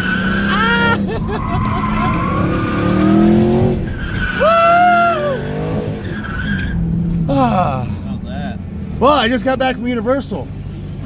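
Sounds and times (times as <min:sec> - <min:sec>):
tyres squealing: 0:00.0 - 0:07.9
car engine revving hard: 0:00.0 - 0:09.8.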